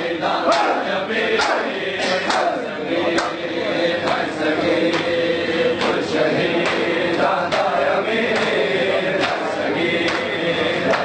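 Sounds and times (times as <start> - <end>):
men chanting in unison: 0.0 - 11.0
hands slapping chests: 1.4 - 2.5.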